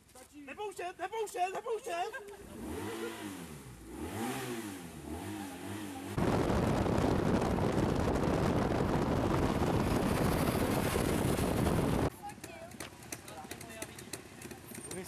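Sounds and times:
wind and road noise in car: 4.0 - 12.1.

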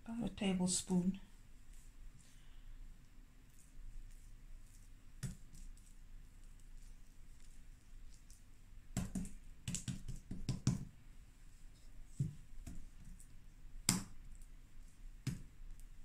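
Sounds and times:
hands patting dough: 3.0 - 11.0, 11.6 - 16.0.

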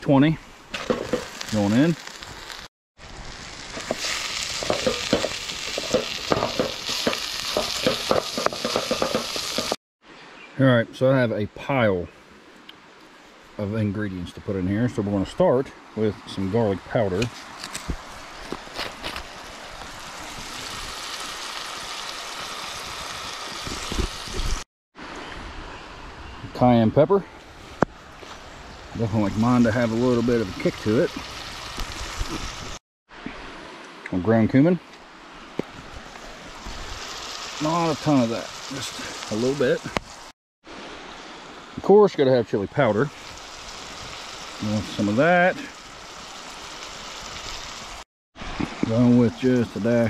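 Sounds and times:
meat sizzling in a frying pan: 0.8 - 9.8, 19.4 - 24.6, 29.2 - 32.8, 36.5 - 40.3, 42.9 - 48.0
wooden spatula scraping a pan: 3.8 - 9.8.

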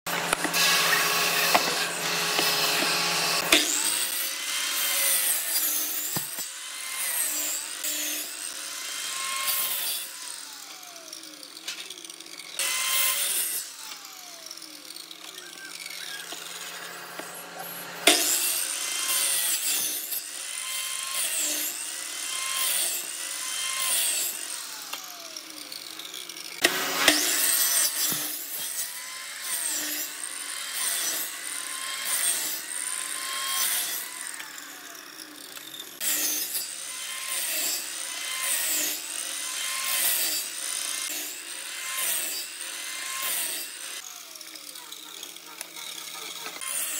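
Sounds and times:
hand sawing wood: 0.1 - 10.9.

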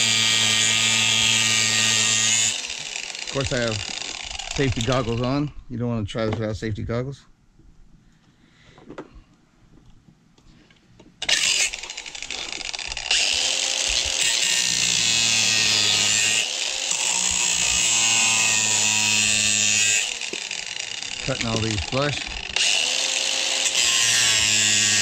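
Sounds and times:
angle grinder cutting steel: 0.0 - 5.5, 11.2 - 25.0.

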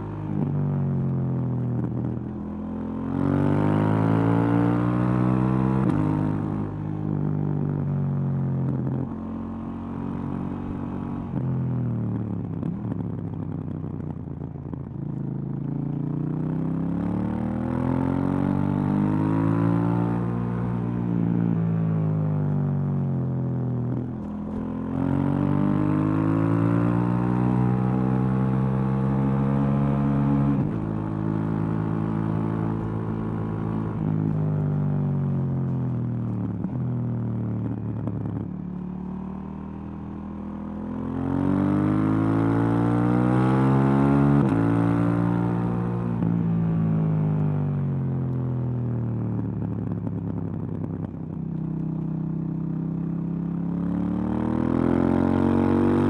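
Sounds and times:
motorcycle engine revving: 53.5 - 56.0.

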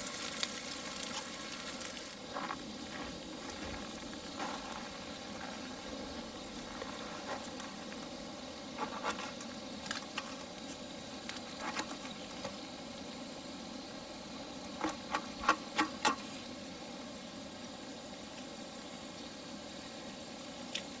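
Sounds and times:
steady low hiss: 0.0 - 21.0.

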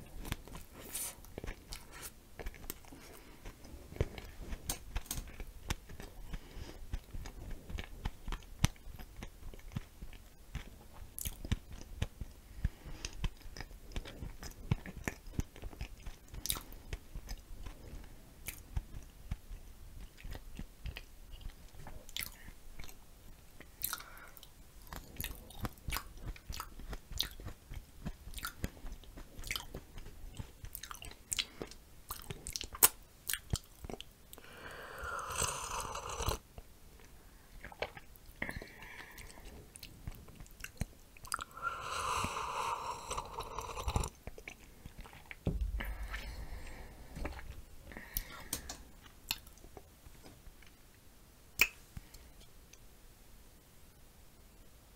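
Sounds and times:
close-miked chewing: 0.0 - 45.4
wet mouth clicks: 24.9 - 28.7, 30.4 - 36.4, 40.6 - 45.3, 51.6 - 51.8.

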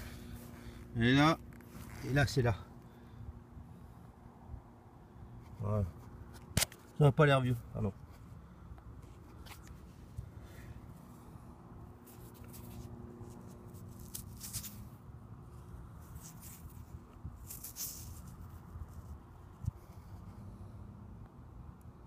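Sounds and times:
fingers rubbing damp soil: 12.0 - 14.9, 16.0 - 20.4.

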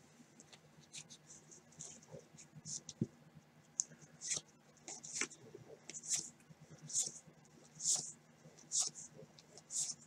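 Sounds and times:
cards swishing against cards: 7.8 - 8.1, 8.7 - 9.0.

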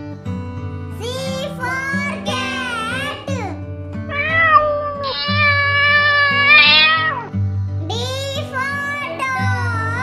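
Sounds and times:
cat meowing: 4.1 - 7.3.

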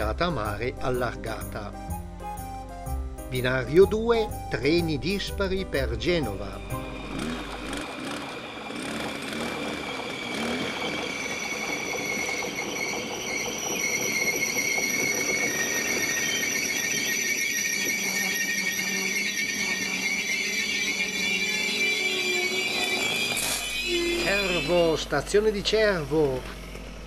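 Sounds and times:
low hum: 0.0 - 13.7
train brake squeal: 0.0 - 27.0.

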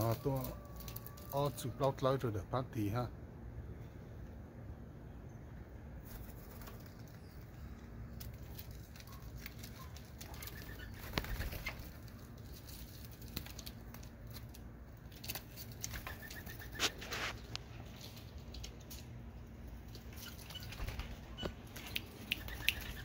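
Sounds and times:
doves shuffling on perch: 0.0 - 1.6, 6.0 - 23.0
doves flapping wings: 6.0 - 19.0, 19.9 - 23.0.

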